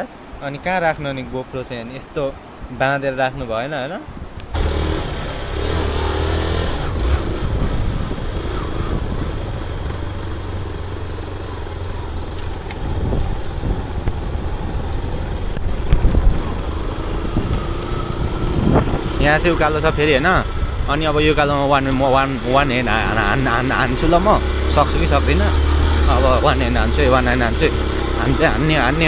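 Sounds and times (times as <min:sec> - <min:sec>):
motorcycle engine running: 0:04.5 - 0:29.0.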